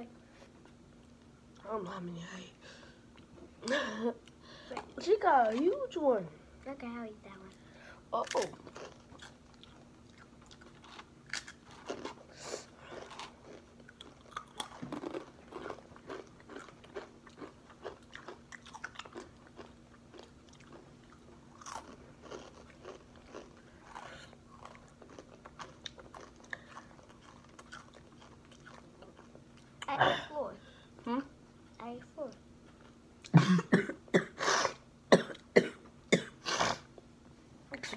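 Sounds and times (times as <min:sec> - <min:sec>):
people chewing crunchy chips: 0:08.2 - 0:30.0.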